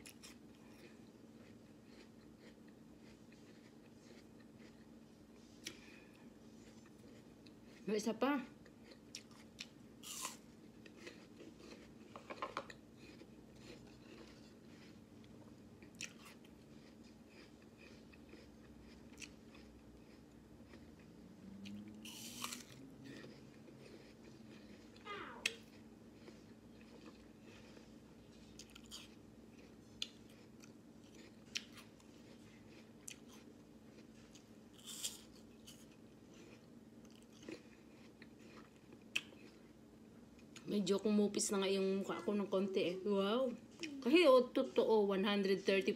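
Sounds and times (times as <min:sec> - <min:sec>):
crunchy chewing: 0:00.0 - 0:07.9, 0:08.5 - 0:40.6
steady low hum: 0:00.0 - 0:45.9
biting crisp apple: 0:08.7 - 0:27.9.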